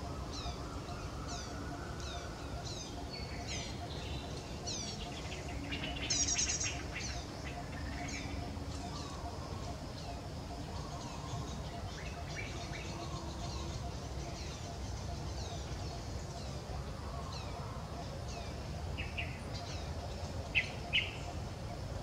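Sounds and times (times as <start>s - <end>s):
birds chirping: 0.0s - 21.9s.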